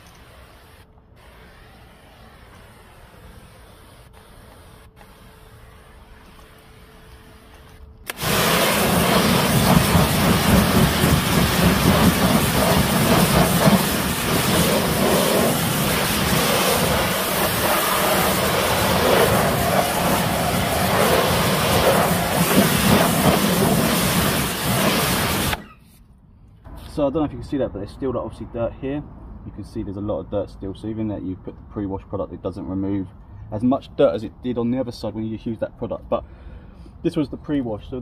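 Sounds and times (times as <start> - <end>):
pressure washer spraying wheel: 0.0 - 25.7.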